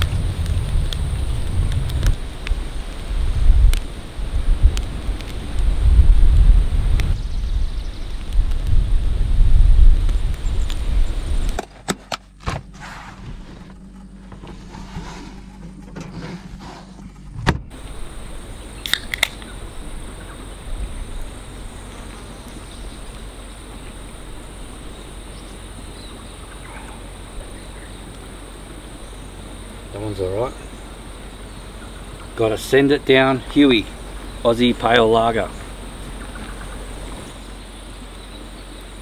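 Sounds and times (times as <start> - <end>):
wind buffeting microphone: 0.0 - 11.6, 17.1 - 39.0
high insect buzz: 17.7 - 39.0
beer can opening: 18.8 - 19.5.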